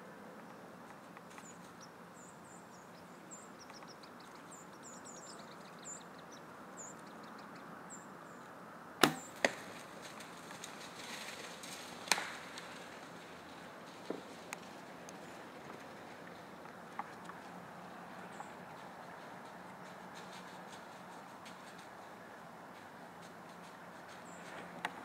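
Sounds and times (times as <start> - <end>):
small birds chirping: 0.5 - 8.6, 12.7 - 25.0
arrow striking target: 9.0 - 9.7
bow release crack: 9.0 - 9.7
rustling: 9.2 - 22.2.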